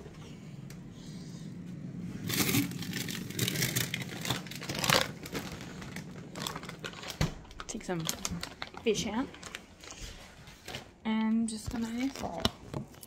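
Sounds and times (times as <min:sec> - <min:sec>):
packaging rustling and crinkling: 0:02.2 - 0:10.9, 0:11.6 - 0:13.0.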